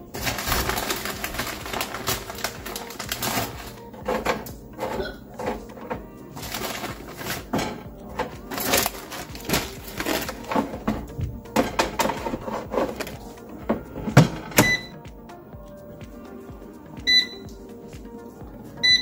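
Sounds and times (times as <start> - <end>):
plastic bag rustling: 0.0 - 14.9
background music: 0.0 - 19.0
food clicking on metal rack: 0.1 - 14.9.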